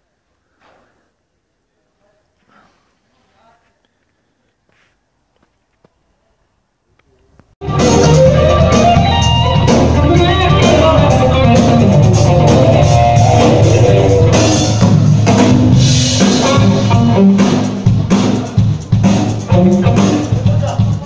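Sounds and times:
loud rock music: 7.6s - 21.0s.

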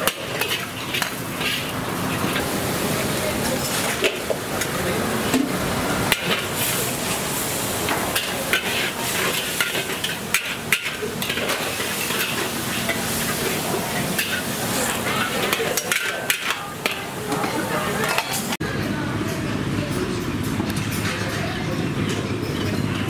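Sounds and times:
metal utensil scraping a pan: 0.0s - 2.5s, 8.1s - 18.5s
food sizzling in a pan: 0.0s - 18.5s.

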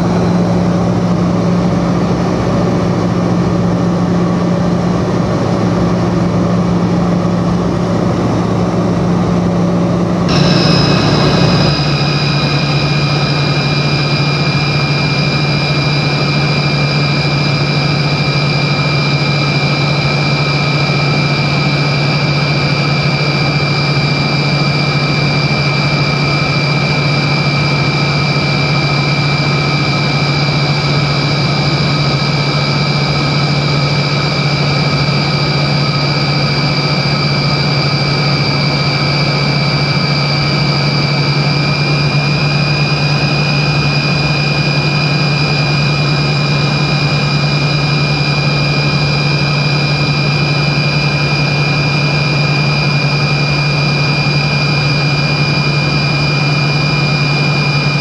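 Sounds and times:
high steady jet whine: 0.0s - 58.0s
airplane cabin hum: 7.7s - 15.6s.

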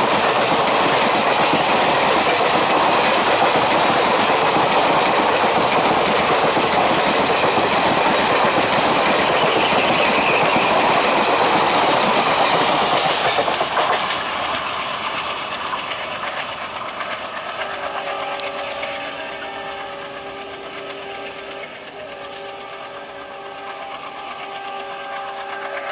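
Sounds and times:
train wheels clattering over rails: 0.0s - 25.9s
faint steady tones: 15.6s - 25.9s.

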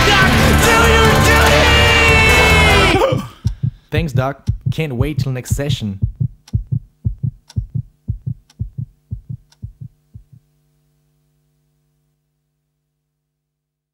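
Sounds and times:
low throbbing beat: 2.1s - 10.5s.

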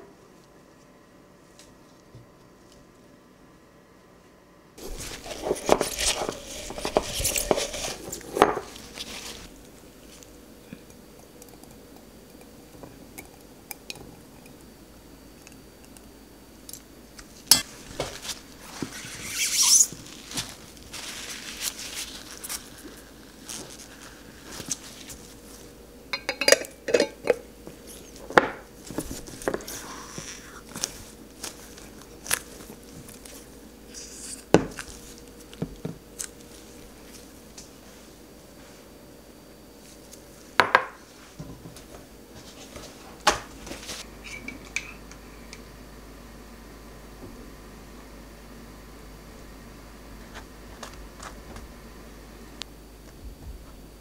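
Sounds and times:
utensil scraping a pot and jar: 4.9s - 9.5s.

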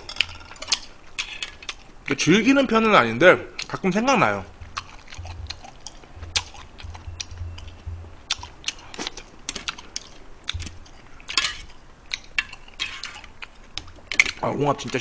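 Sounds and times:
chopsticks clacking on mussel shells: 8.4s - 15.0s.

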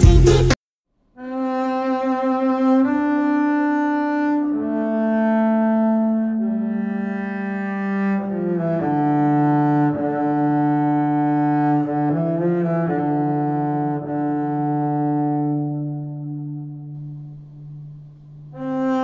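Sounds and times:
slow melody of held notes: 1.2s - 19.0s.

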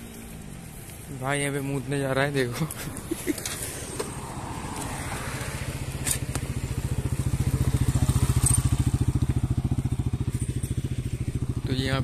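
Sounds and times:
motorcycle engine running: 4.1s - 12.0s.

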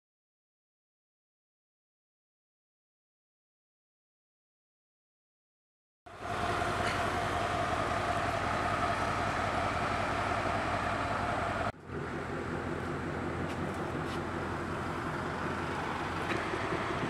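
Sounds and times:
car engine idling: 6.1s - 17.0s
deeper car engine idling: 6.1s - 17.0s.

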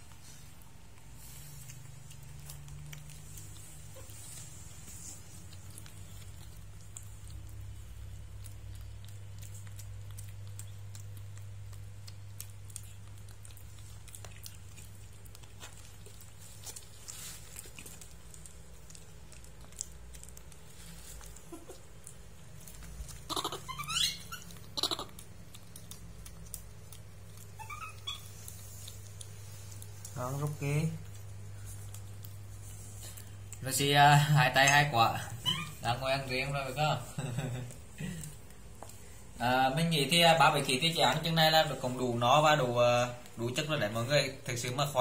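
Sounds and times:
steady low hum: 0.0s - 45.0s
monkey squeals: 23.2s - 25.1s, 27.6s - 28.3s, 35.4s - 35.9s
faint monkey squeaks: 23.2s - 25.2s, 27.6s - 28.4s, 35.4s - 35.9s.

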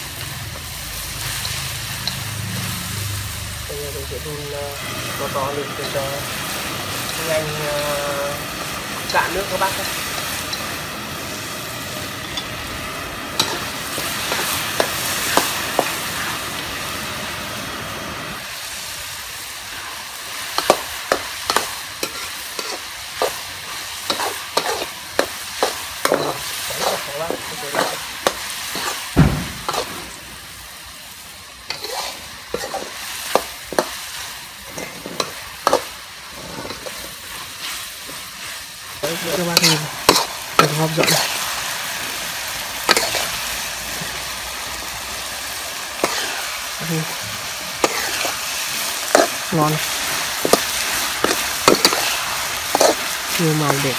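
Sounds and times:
sauce boiling: 0.0s - 53.9s
vegetables sizzling in a wok: 0.0s - 53.9s
utensils scraping and clinking on wok: 0.1s - 3.0s, 3.7s - 16.5s, 19.7s - 30.2s, 31.6s - 41.8s, 42.8s - 44.3s, 45.8s - 53.9s
dull thump: 29.2s - 29.7s.

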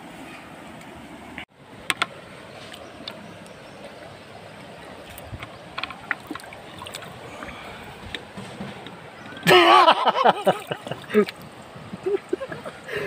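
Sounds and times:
shallow river water flowing: 0.0s - 13.0s
small water splashes: 2.7s - 8.4s, 9.0s - 13.0s.

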